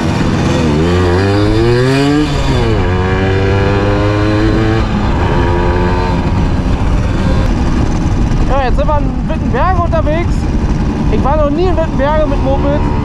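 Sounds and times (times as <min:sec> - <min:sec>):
moped engine accelerating: 0:00.0 - 0:13.0.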